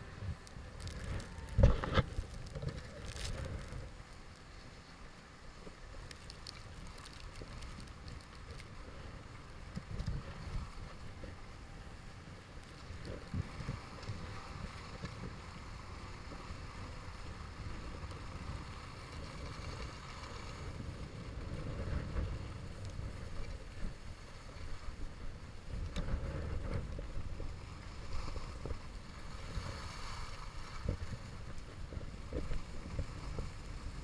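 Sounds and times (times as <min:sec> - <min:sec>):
wind buffeting microphone: 0:12.9 - 0:34.0.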